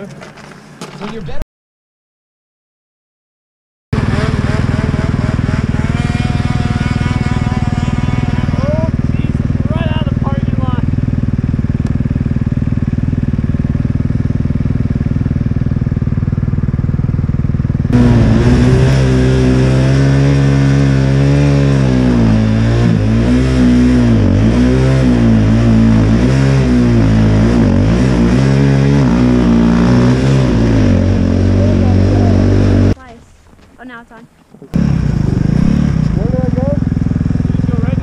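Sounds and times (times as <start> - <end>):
snow bike engine revving: 4.0 - 33.2, 33.8 - 38.0.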